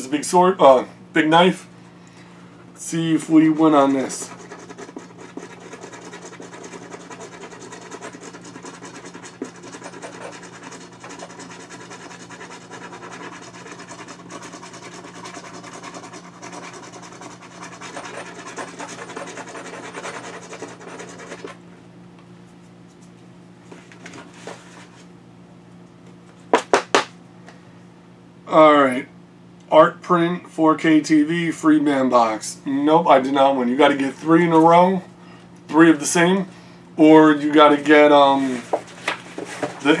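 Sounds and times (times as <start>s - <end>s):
knife scraping scratch card: 3.4s - 21.6s.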